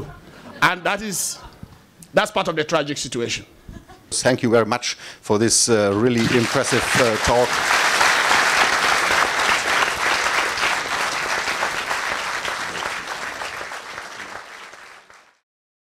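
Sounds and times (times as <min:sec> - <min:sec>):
audience applauding: 0:06.1 - 0:15.4.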